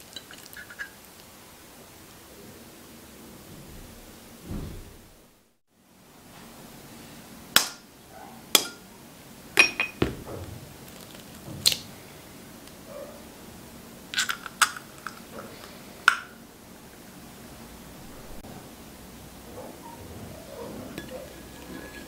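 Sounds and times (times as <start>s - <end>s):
clinks on glass bowl: 9.6s - 10.1s.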